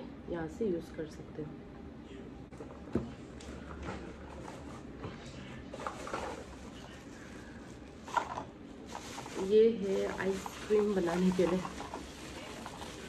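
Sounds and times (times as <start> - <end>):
plastic bag rustling and crinkling: 5.6 - 13.0.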